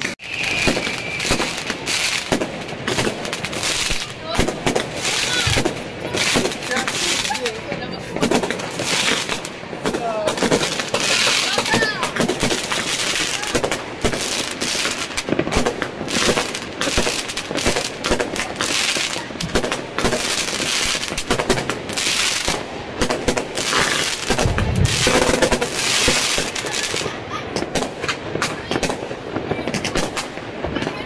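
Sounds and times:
fireworks bangs and crackling: 0.0s - 31.0s
heavy firework boom: 24.2s - 26.6s.

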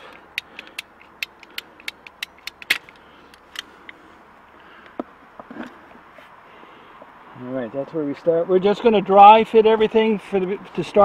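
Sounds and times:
pipe snapping: 0.0s - 3.0s.

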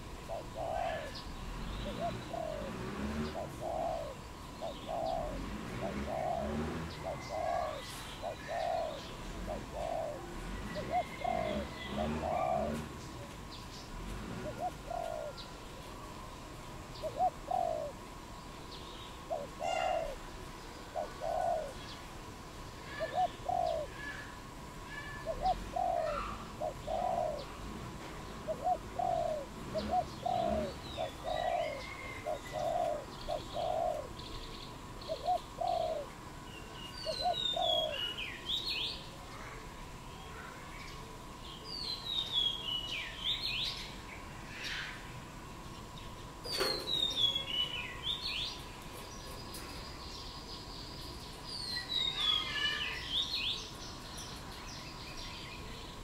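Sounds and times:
dove cooing: 0.0s - 18.3s, 19.2s - 22.1s, 22.8s - 34.4s, 35.0s - 38.9s
small birds chirping: 0.0s - 56.0s
high bird calls: 18.7s - 22.1s, 22.7s - 27.6s, 28.5s - 39.6s, 45.8s - 56.0s.

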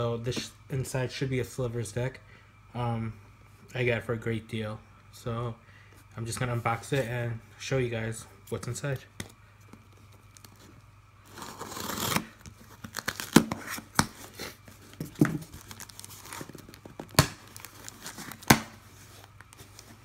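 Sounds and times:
scissors slitting packing tape: 11.3s - 14.2s
tape and cardboard cracking: 11.3s - 19.8s.

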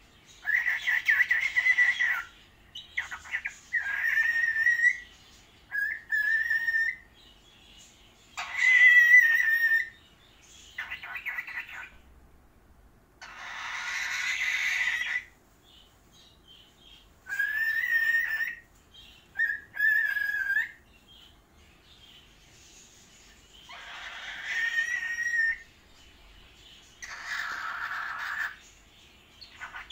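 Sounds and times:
cockatiels whistling and calling: 0.4s - 7.1s, 8.4s - 10.0s, 10.8s - 12.0s, 13.2s - 15.3s, 17.2s - 18.6s, 19.3s - 20.8s, 23.6s - 25.7s, 27.0s - 28.6s, 29.4s - 29.9s.

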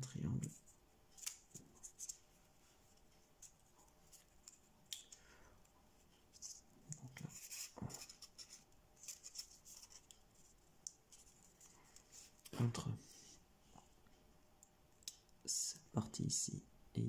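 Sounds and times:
paper crinkling while folded: 7.2s - 12.6s.

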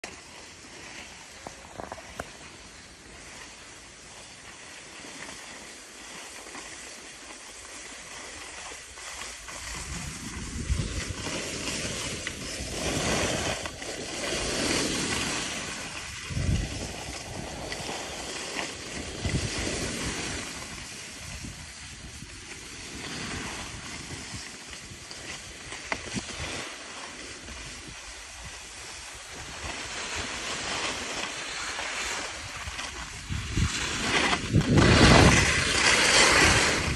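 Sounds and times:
skis scraping over snow: 0.0s - 36.9s
wind buffeting microphone: 9.4s - 13.8s, 14.4s - 18.3s, 18.9s - 22.4s, 32.3s - 36.9s.

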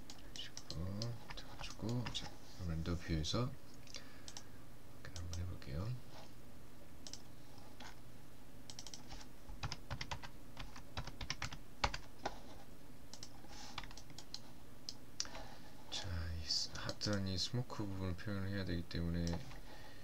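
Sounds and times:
keyboard and mouse clicks: 0.0s - 2.3s, 7.0s - 7.2s, 8.7s - 12.4s, 13.1s - 15.4s, 16.8s - 17.3s, 19.2s - 19.6s
steady low hum: 0.0s - 20.0s.

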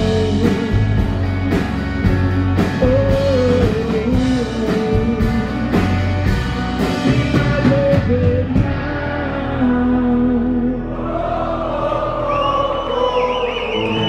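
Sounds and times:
live rock band playing: 0.0s - 10.7s.

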